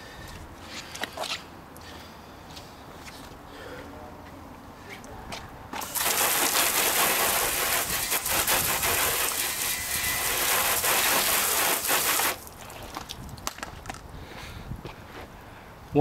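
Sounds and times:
hose water spraying on car: 5.8 - 12.9.

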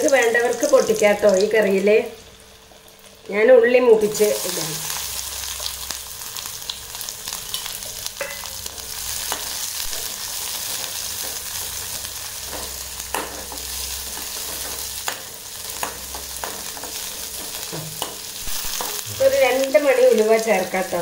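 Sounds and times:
shallots sizzling in oil: 0.0 - 21.0
spoon scraping and knocking pan: 8.1 - 11.7, 12.4 - 19.4.

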